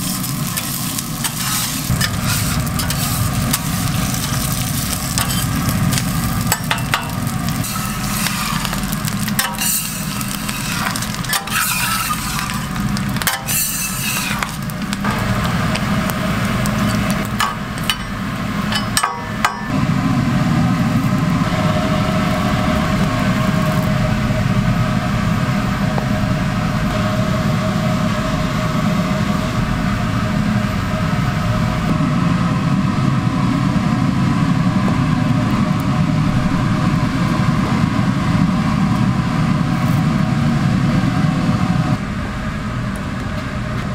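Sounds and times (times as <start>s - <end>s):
butter and onion sizzling: 0.0s - 24.1s
low mechanical hum: 0.0s - 43.9s.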